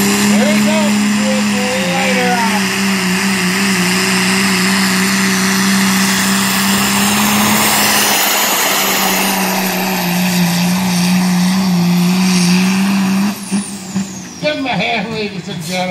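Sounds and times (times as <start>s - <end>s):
diesel truck engine at full throttle: 0.0s - 15.9s.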